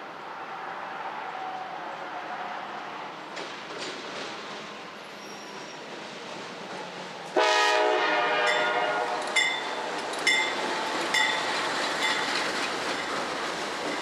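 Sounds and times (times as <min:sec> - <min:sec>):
locomotive air horn toot: 0:07.4 - 0:09.4
wheels clacking over track: 0:09.2 - 0:14.0.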